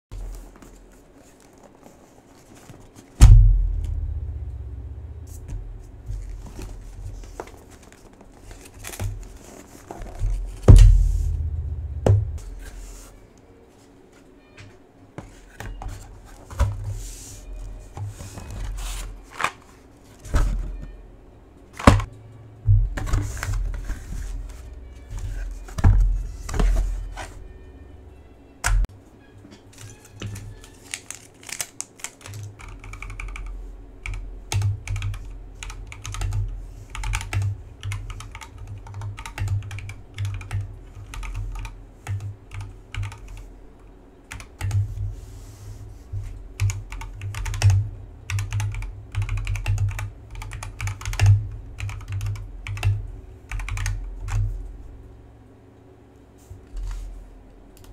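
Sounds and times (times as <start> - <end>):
cardboard packaging knocks and thumps: 10.1 - 12.6
background music: 23.6 - 31.6.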